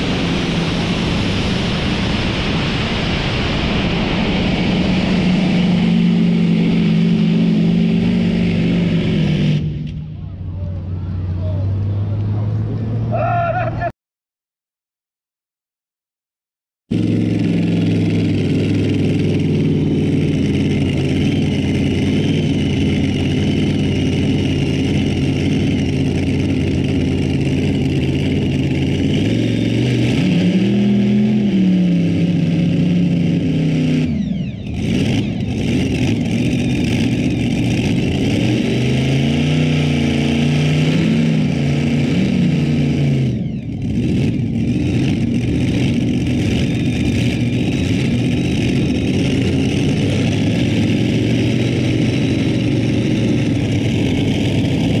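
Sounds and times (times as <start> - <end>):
tractor engine revving hard: 0.0 - 10.0, 16.9 - 55.0.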